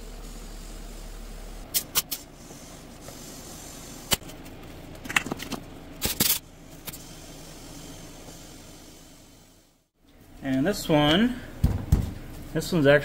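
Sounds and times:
compressed air hissing: 0.0s - 4.2s, 6.5s - 9.9s.

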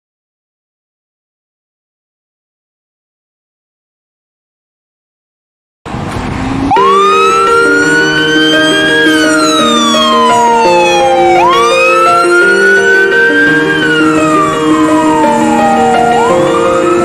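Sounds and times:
fire engine siren wailing: 5.9s - 17.0s
background music: 6.7s - 17.0s.

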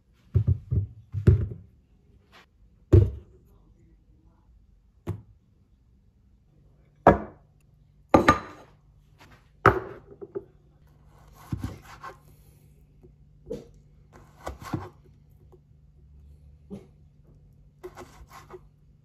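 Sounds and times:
ceramic bowls knocking on counter: 7.1s - 7.4s, 8.1s - 8.7s, 9.6s - 10.5s
knife cutting on plastic board: 11.1s - 12.3s, 14.1s - 15.1s, 17.8s - 18.8s.

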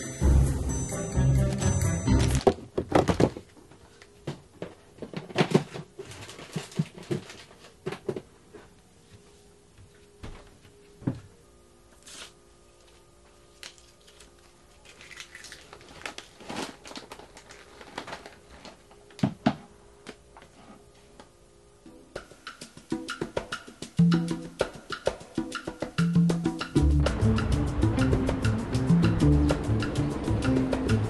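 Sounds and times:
plastic box knocks and clatters: 2.4s - 3.4s
plastic packets rustling: 5.0s - 7.8s, 13.6s - 19.2s.

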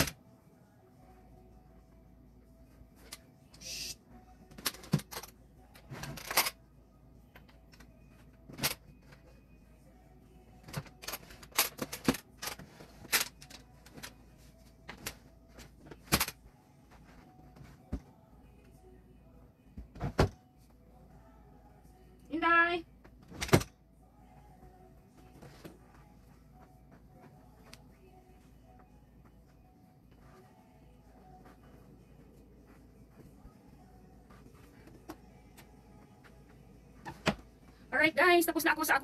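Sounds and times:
clothes rustling: 25.2s - 37.8s.

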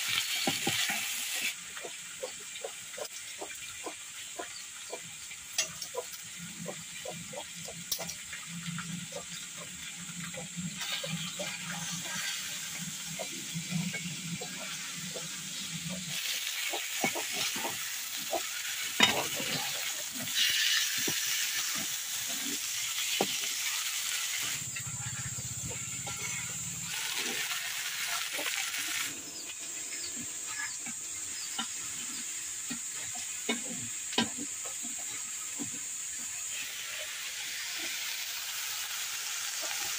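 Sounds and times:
fish sizzling in oil: 0.0s - 39.9s
metal spatula scraping pan: 18.6s - 23.5s.

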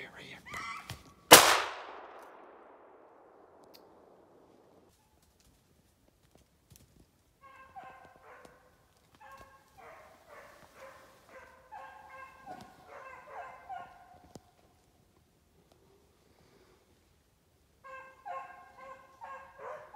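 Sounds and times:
distant hounds baying: 7.4s - 14.5s, 17.8s - 19.9s.

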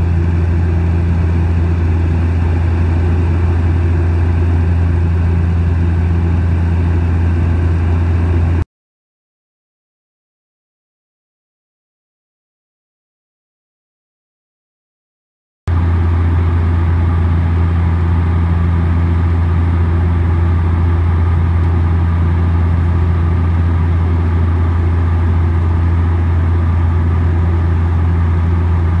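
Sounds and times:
turboprop cabin drone: 0.0s - 8.6s, 15.7s - 29.0s.

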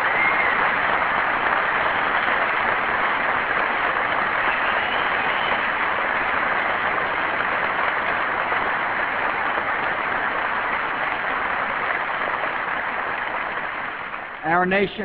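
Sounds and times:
audience applauding: 0.0s - 15.0s.

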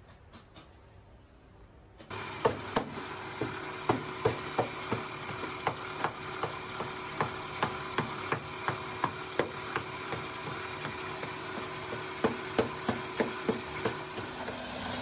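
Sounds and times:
steady machine hum: 2.0s - 15.0s
hammer knocking on metal tray: 2.4s - 14.3s.

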